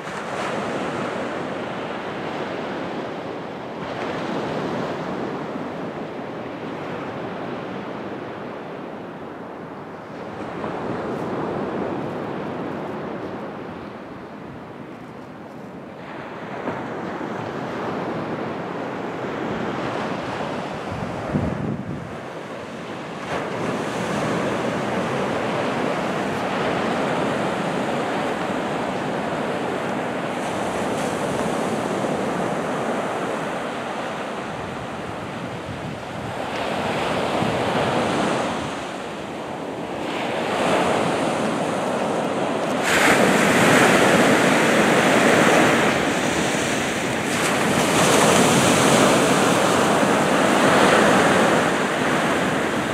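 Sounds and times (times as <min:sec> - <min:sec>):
wind buffeting microphone: 0:00.0 - 0:52.9
sea surf breaking: 0:15.9 - 0:52.9.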